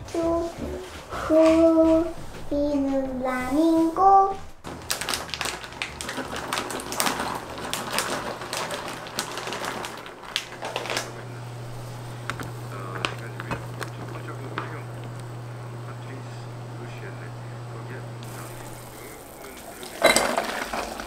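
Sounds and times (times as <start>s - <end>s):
low steady hum: 0.0s - 21.0s
nuts clattering in a frying pan: 4.7s - 15.3s, 18.2s - 21.0s.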